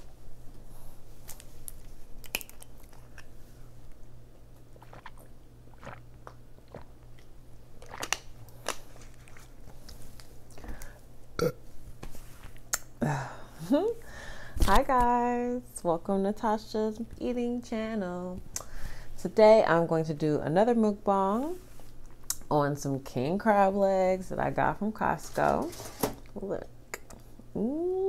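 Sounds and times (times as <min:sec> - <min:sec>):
faint steady hum: 0:00.0 - 0:28.0
person drinking and swallowing: 0:04.7 - 0:08.2.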